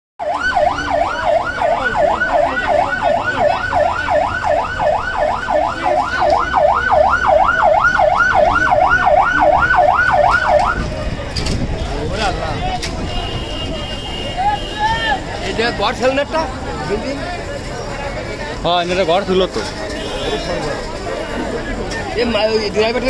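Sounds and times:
siren fast wail: 0:00.2 - 0:10.9.

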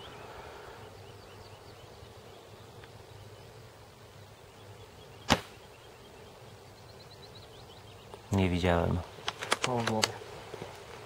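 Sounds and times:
airsoft rifle shot: 0:05.3 - 0:05.6.

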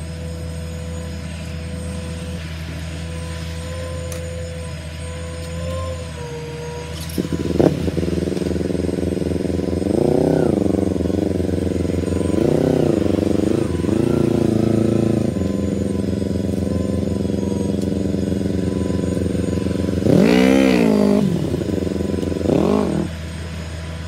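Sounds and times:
motorcycle engine starting and revving: 0:00.0 - 0:24.0.

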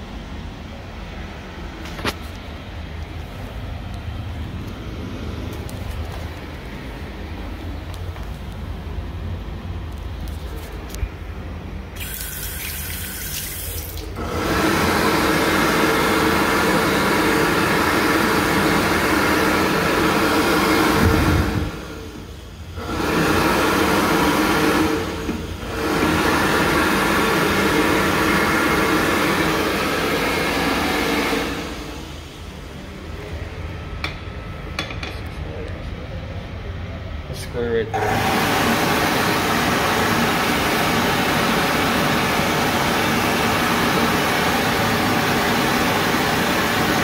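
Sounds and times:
hand dryer blowing: 0:11.9 - 0:32.5, 0:38.0 - 0:47.0
running water from faucet: 0:12.0 - 0:14.2.

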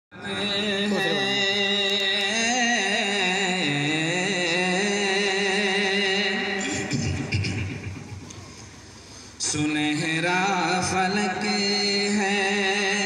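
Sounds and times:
man singing wordless melody: 0:00.1 - 0:07.4, 0:09.4 - 0:13.0.

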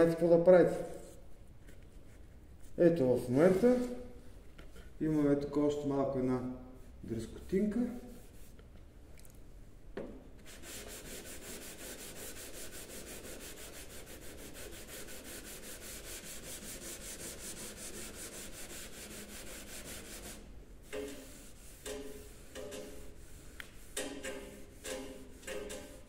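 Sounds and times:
sanding block rubbing car paint: 0:10.4 - 0:26.0.

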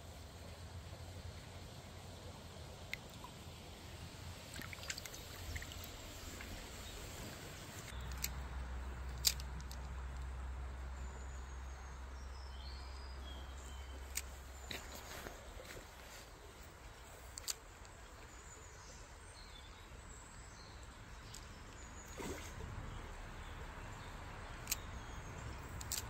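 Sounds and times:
creek water trickling: 0:00.0 - 0:26.0
bird chirping: 0:10.9 - 0:26.0.

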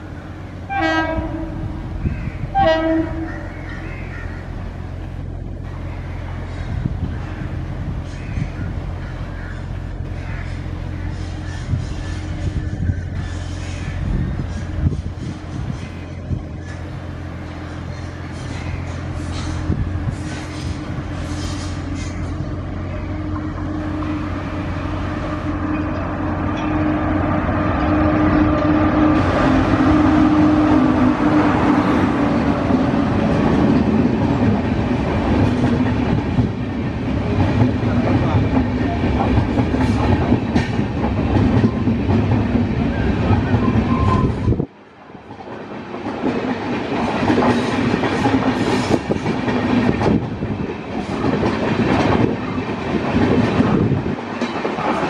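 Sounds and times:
electric locomotive hum: 0:00.0 - 0:55.0
train wheels clickety-clack: 0:17.7 - 0:22.4, 0:27.8 - 0:55.0.

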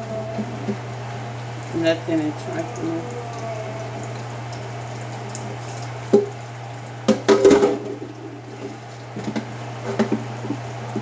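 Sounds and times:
steady low hum: 0:00.0 - 0:11.0
water sloshing in a sink: 0:00.0 - 0:11.0
pots and dishes clattering: 0:07.1 - 0:10.6.

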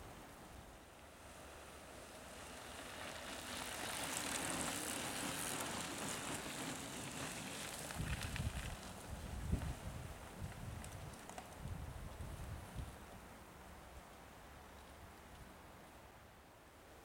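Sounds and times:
bike tyres rolling on dirt: 0:00.5 - 0:13.0.

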